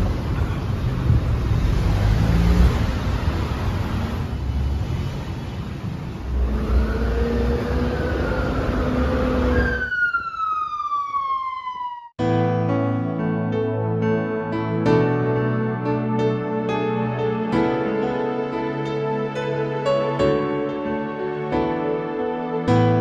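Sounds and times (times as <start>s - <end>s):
cars passing: 0.0s - 10.1s.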